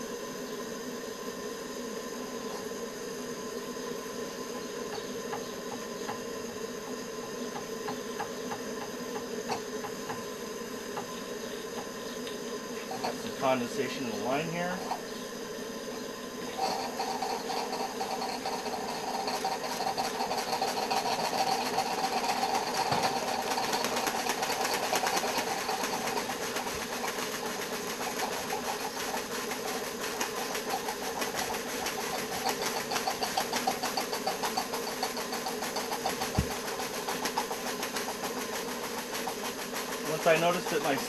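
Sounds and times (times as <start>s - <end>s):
steam hissing: 0.0s - 41.0s
model steam engine chuffing: 12.7s - 41.0s.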